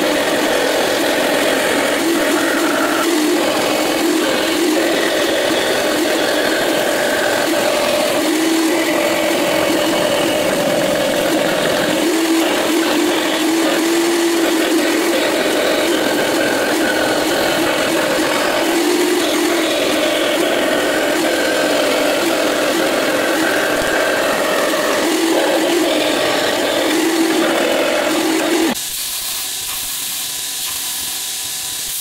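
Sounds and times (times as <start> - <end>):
bandsaw humming: 0.0 - 28.9
saw blade cutting steel: 0.0 - 30.0.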